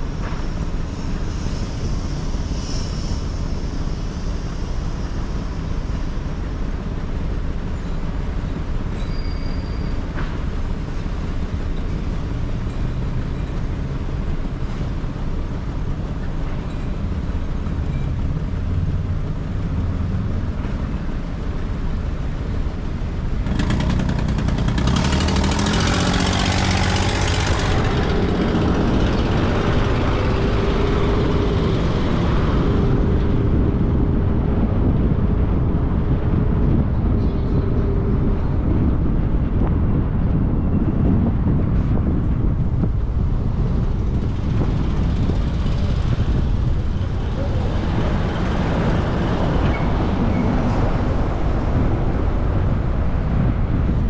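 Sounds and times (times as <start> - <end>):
road rumble of driving car: 0.0 - 54.0
loud rush of noise: 17.1 - 54.0.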